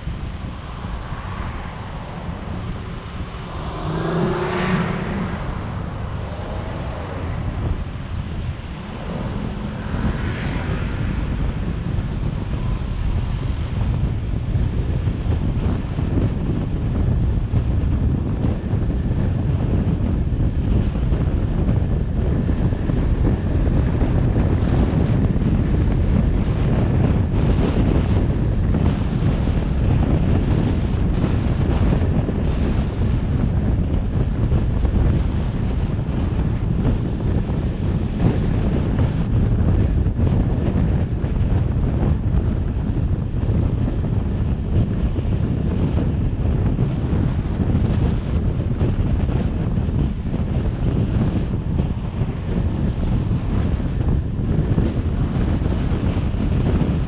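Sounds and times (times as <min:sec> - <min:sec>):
low road rumble: 0:00.0 - 0:57.0
wind buffeting microphone: 0:00.0 - 0:57.0
vehicle engine passing by: 0:00.2 - 0:16.1.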